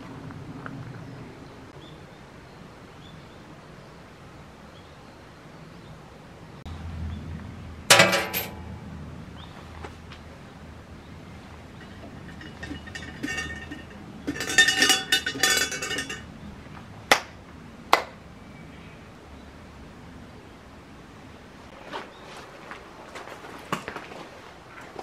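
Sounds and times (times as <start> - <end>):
loud metallic clink: 7.9 - 8.7, 11.8 - 16.3.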